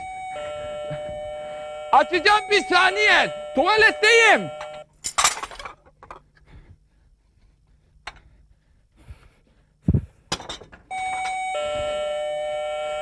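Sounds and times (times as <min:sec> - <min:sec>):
electric doorbell ringing: 0:00.0 - 0:04.9, 0:10.9 - 0:13.0
dishes clinking and knocking: 0:10.3 - 0:10.9.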